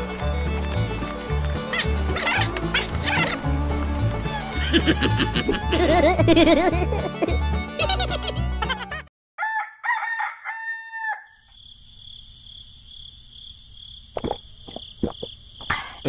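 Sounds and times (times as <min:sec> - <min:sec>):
background music: 0:00.0 - 0:09.1
rooster crowing: 0:09.4 - 0:11.5.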